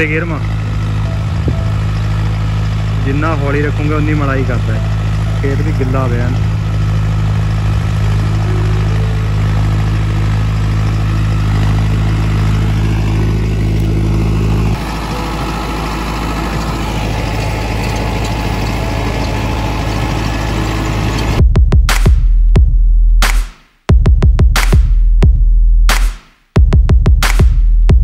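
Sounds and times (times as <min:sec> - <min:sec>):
tractor diesel engine running: 0:00.0 - 0:23.0.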